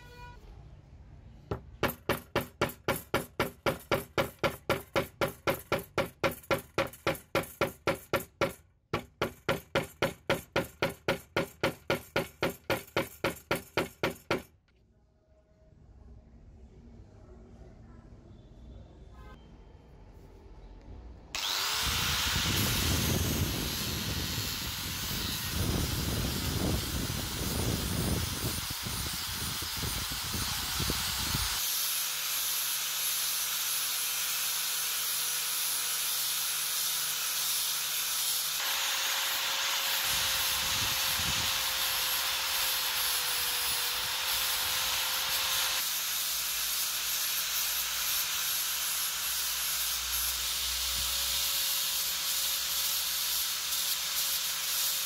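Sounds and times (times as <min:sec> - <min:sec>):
angle grinder grinding: 0:21.4 - 0:55.0.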